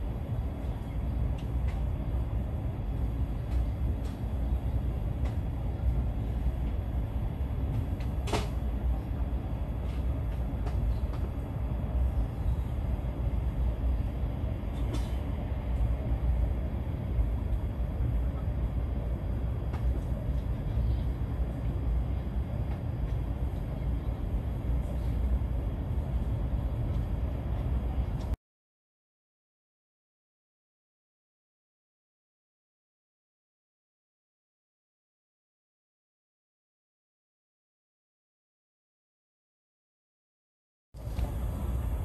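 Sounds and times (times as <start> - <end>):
train interior low rumble: 0.0 - 28.4, 41.0 - 42.0.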